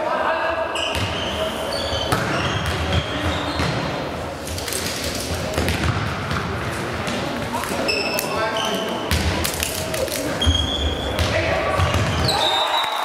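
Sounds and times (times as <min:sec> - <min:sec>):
shoes squeaking on floor: 0:00.7 - 0:03.9, 0:07.6 - 0:09.1, 0:10.3 - 0:11.2.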